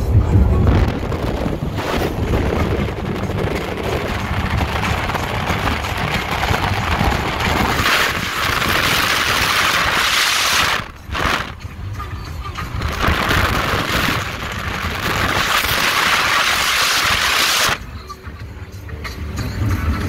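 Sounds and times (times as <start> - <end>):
powerboat engine drone: 0.0 - 20.0
water rushing: 0.7 - 11.6, 12.7 - 17.8
wind hiss on microphone: 12.8 - 17.8.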